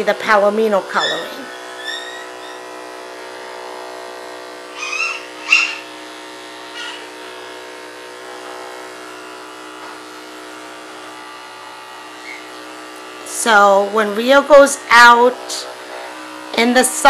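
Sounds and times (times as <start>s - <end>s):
electric clippers humming: 0.0s - 17.0s
short high squeaks: 1.0s - 2.7s, 4.8s - 5.9s, 12.2s - 12.5s.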